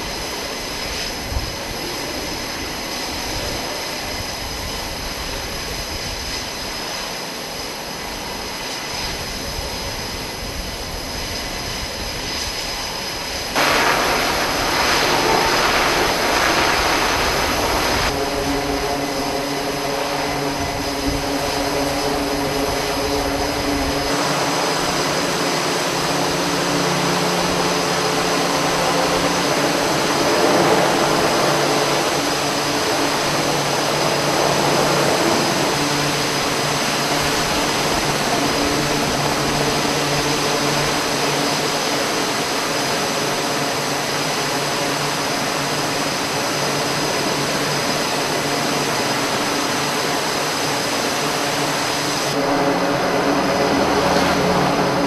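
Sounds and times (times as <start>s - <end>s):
helicopter turbines and rotor: 0.0s - 55.0s
turboprop engines droning: 0.0s - 55.0s.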